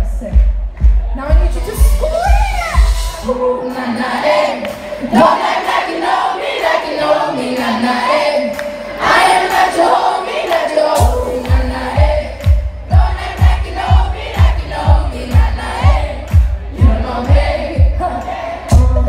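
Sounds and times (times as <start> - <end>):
kick drum and bass beat: 0.0 - 3.2, 11.0 - 19.0
woman singing: 1.2 - 19.0
crowd singing along: 2.8 - 19.0.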